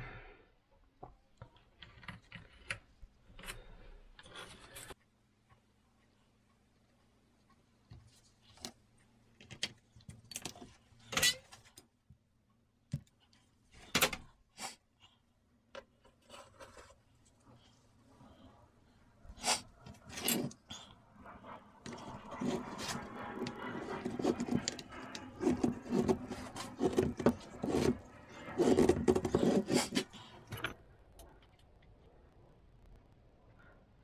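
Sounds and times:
continuous rubbing: 16.0 - 30.6
tools clicking and knocking on workbench: 21.9 - 30.8.

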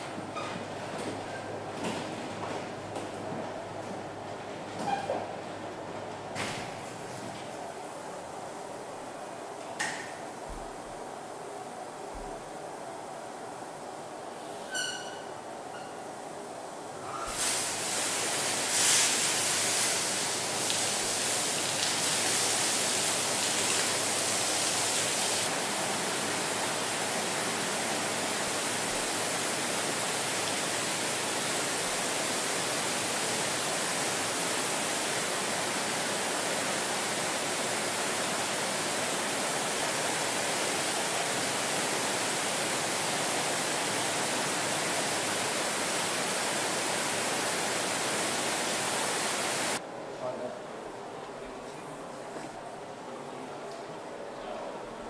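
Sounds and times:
water spray hissing: 17.3 - 49.8.

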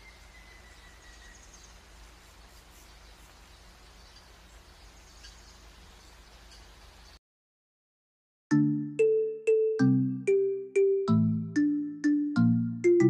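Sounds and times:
distant birds chirping: 0.0 - 7.2.

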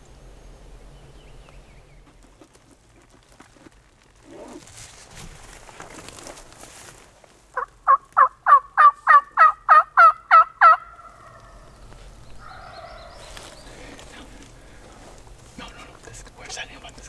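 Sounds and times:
turkey yelping: 7.6 - 11.6, 12.4 - 13.2.

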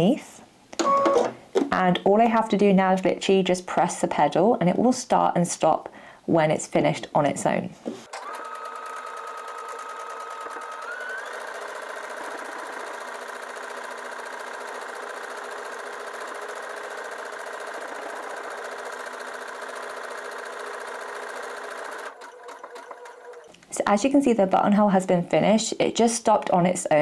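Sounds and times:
sewing machine motor whine: 8.1 - 23.6.

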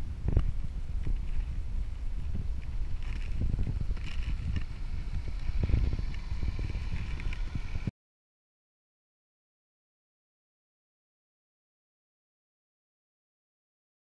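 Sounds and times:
low irregular rumble and knocking: 0.3 - 7.9.

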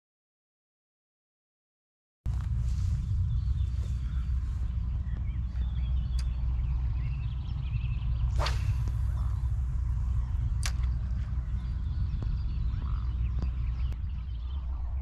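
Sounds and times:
fishing rod swishing: 8.3 - 9.2.

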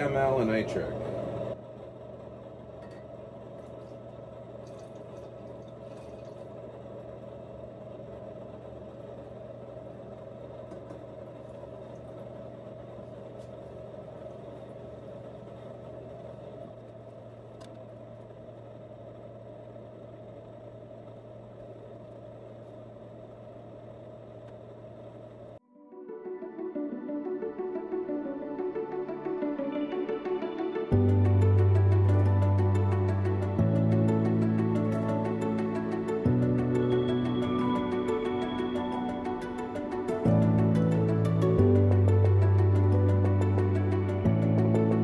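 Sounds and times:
equipment humming: 0.0 - 25.6, 27.5 - 45.0.

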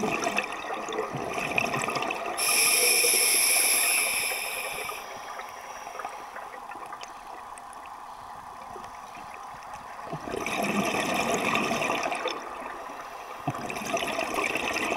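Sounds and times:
exhaled bubbles rushing: 0.0 - 2.4, 10.1 - 12.8, 13.5 - 14.9
low underwater hiss: 2.3 - 10.1, 12.0 - 13.7.

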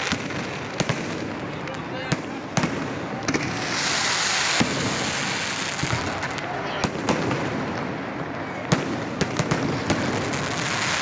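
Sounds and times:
firework bangs and crackles: 0.0 - 11.0
firework hissing rush: 2.3 - 7.9.

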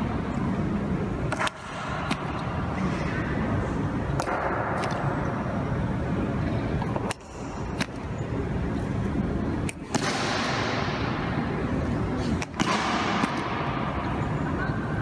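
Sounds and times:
crowd noise in a hall: 0.0 - 15.0.

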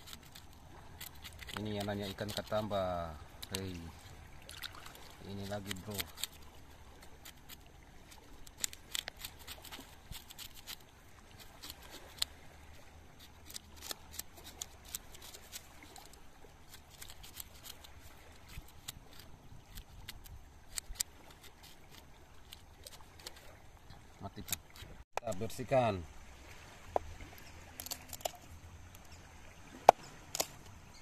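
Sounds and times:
knife scraping fish scales: 0.0 - 12.4, 13.2 - 23.5.

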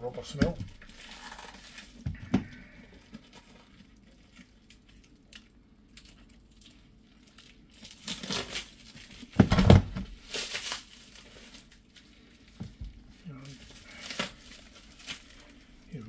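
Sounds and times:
plastic crinkling and tearing: 0.1 - 16.0
plastic wrapping being cut: 7.5 - 11.8.

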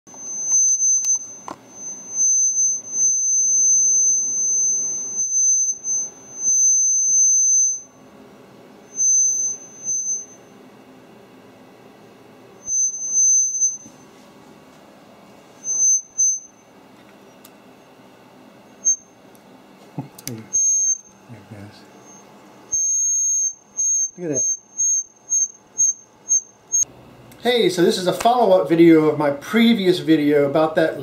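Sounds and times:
high-pitched feedback squeal: 0.1 - 8.0, 8.9 - 10.5, 12.6 - 14.2, 15.5 - 17.4, 18.7 - 19.2, 20.5 - 26.9.

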